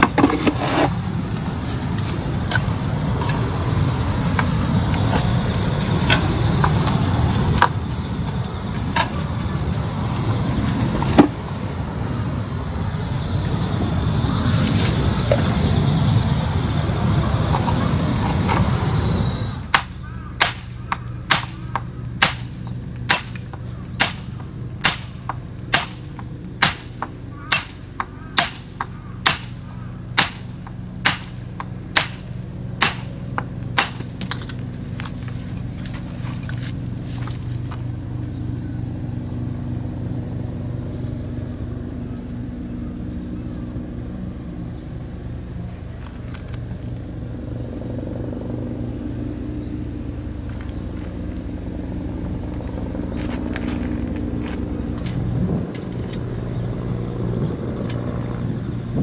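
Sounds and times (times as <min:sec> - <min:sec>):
low engine hum: 0:00.0 - 0:59.0
hammer striking stone: 0:19.7 - 0:29.6, 0:30.2 - 0:34.3.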